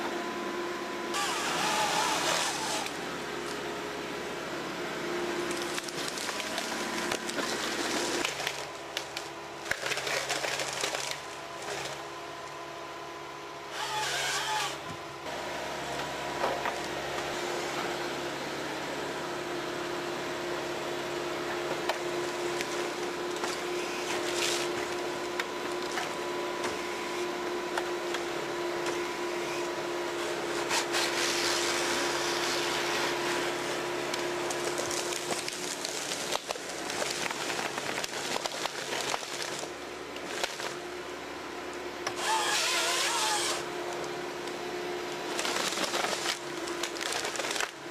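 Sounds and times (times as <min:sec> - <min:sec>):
engine and hydraulics whining: 0:00.0 - 0:47.9
wood cracking and knocking: 0:05.5 - 0:12.0, 0:34.5 - 0:40.8, 0:45.3 - 0:47.8.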